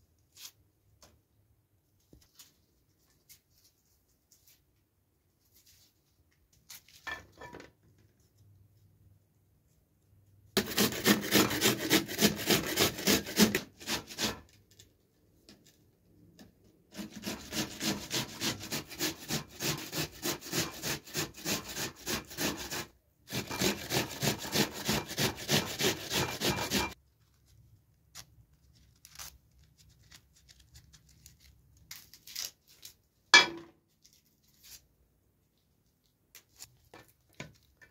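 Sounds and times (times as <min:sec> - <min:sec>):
onion rasping on metal grater: 0:10.6 - 0:14.5, 0:16.9 - 0:27.0.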